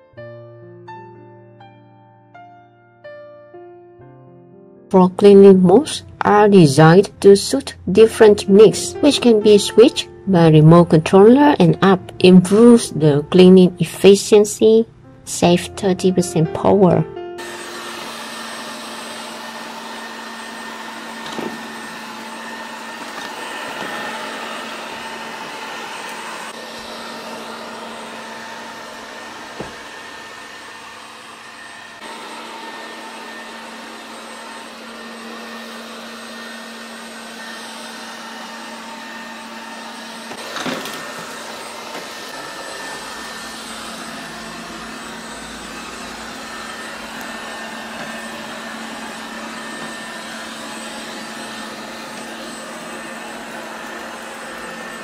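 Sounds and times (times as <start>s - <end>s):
robot vacuum cleaner running: 17.4s - 55.0s.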